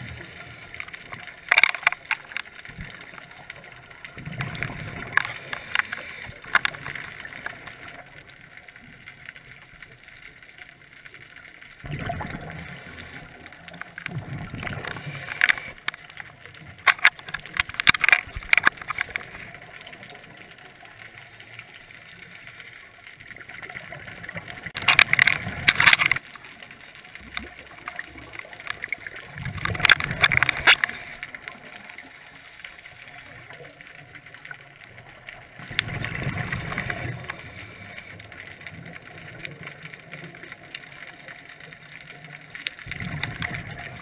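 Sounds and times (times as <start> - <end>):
faint steady hiss: 0.0 - 44.0.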